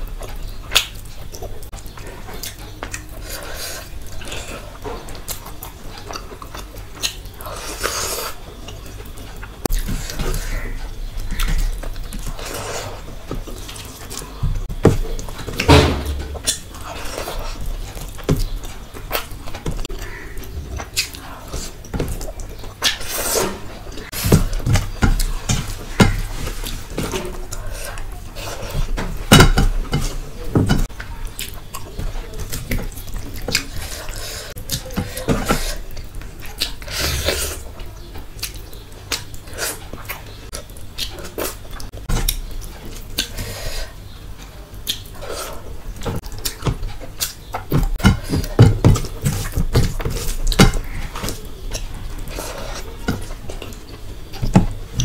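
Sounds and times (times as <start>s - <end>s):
chewing and lip smacking: 0.1s - 10.2s, 35.7s - 54.4s.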